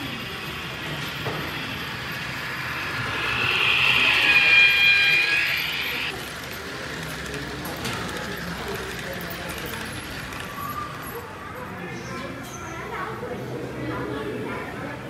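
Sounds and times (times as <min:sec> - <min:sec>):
high whine: 0:00.0 - 0:07.7
model train running: 0:00.0 - 0:12.0.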